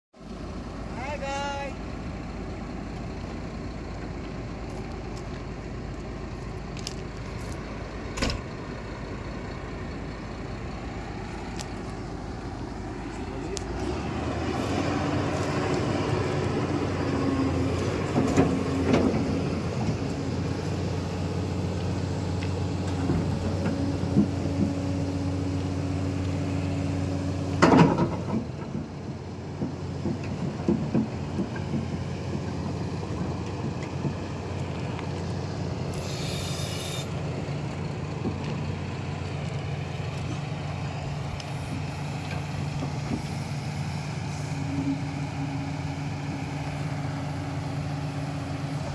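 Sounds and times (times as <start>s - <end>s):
excavator diesel engine running: 0.2s - 48.9s
short hiss: 36.0s - 37.1s.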